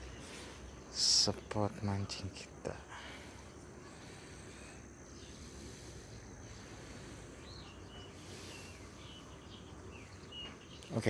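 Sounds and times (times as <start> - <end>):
high insect whine: 0.0 - 10.4
bird chirps: 3.0 - 11.0.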